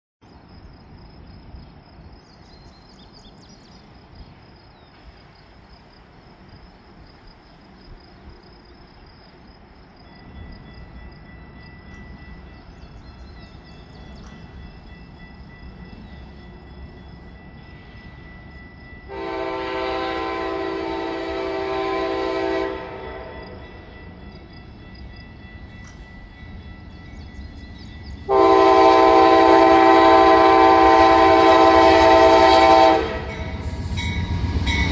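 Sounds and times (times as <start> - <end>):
train rumble: 0.2 - 34.9
train air horn blast: 19.1 - 23.6, 28.3 - 34.2.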